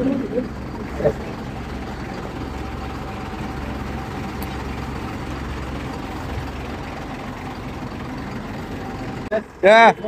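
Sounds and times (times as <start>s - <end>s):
diesel truck engine idling: 0.0s - 10.0s.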